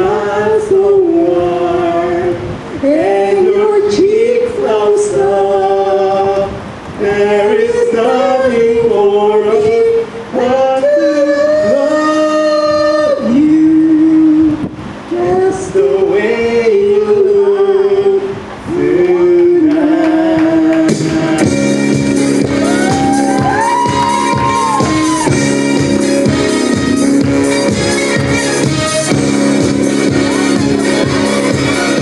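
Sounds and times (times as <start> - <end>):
man singing: 0.0 - 21.9.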